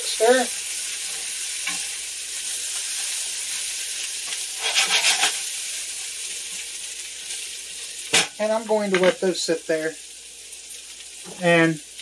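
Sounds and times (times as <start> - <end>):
vegetables sizzling in butter: 0.0 - 12.0
spoon stirring and rattling: 4.6 - 5.4.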